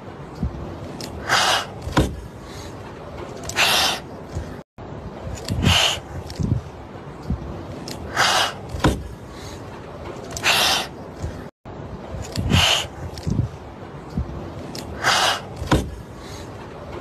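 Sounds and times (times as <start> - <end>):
kittens hissing: 1.2 - 1.9, 3.4 - 4.1, 5.5 - 6.1, 8.1 - 8.7, 10.4 - 11.0, 12.4 - 13.0, 15.0 - 15.6.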